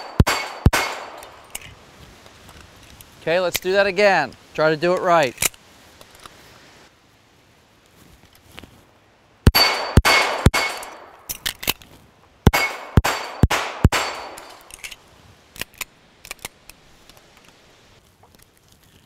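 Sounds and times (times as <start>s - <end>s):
handgun shots: 0.0s - 1.3s, 9.5s - 11.0s, 12.5s - 14.6s
steel plates ringing: 9.5s - 11.1s, 12.5s - 14.8s.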